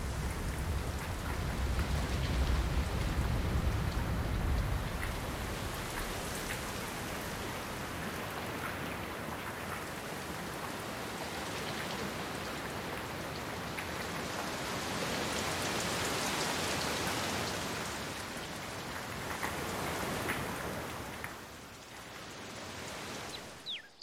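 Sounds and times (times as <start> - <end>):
raindrops ticking: 0.0 - 8.8
heavy rain falling: 0.0 - 23.6.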